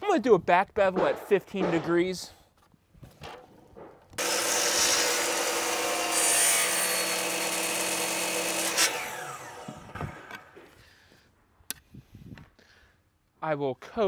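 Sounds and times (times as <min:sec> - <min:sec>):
saw blade spinning down: 0:04.2 - 0:10.5
miter saw cutting: 0:04.2 - 0:10.6.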